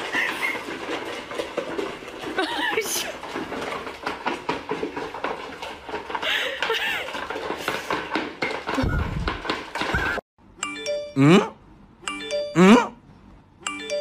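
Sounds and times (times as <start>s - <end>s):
kibble clattering in bowls: 0.0s - 10.2s.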